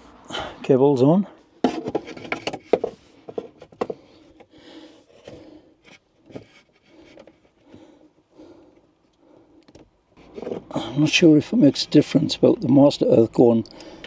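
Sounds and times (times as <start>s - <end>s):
person breathing heavily: 0.0s - 0.6s, 3.9s - 6.0s, 6.8s - 9.7s, 13.7s - 14.0s
cables and tool clicking: 13.6s - 14.0s.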